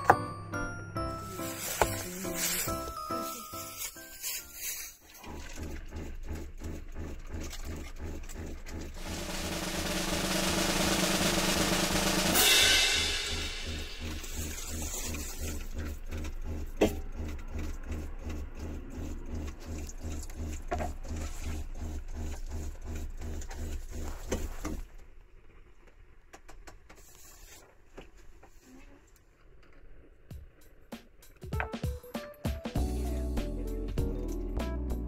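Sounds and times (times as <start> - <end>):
cymbal crash: 9.0 - 15.0
music with drum beat: 9.0 - 15.0, 30.3 - 35.0.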